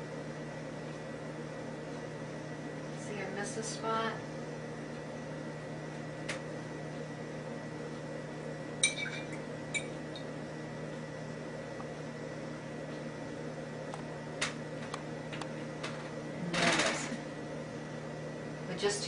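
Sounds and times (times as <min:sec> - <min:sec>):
steady low hum: 0:00.0 - 0:19.0
earring clinking in ceramic bowl: 0:08.8 - 0:09.9.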